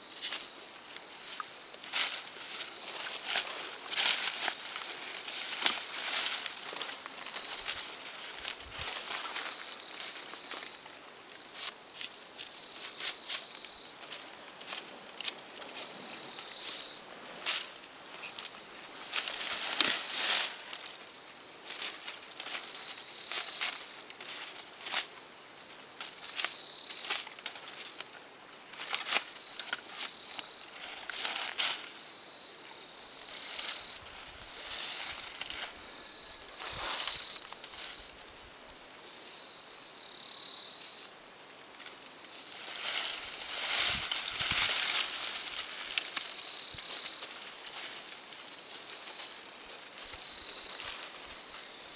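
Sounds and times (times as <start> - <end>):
high-pitched insect chorus: 0.0 - 51.9.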